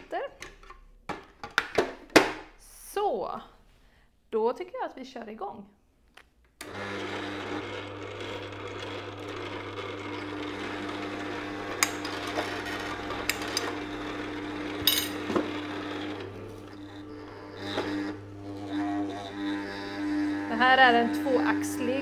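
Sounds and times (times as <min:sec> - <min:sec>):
juicer motor humming: 0:06.6 - 0:22.0.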